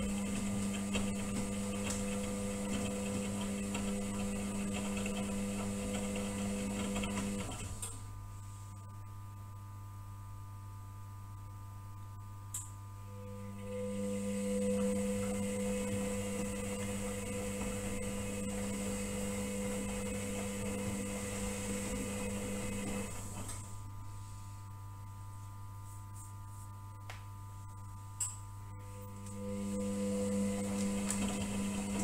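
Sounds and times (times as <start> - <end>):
washing machine motor hum: 0.0 - 8.8, 13.0 - 25.8, 26.9 - 32.0
click: 12.5 - 12.8.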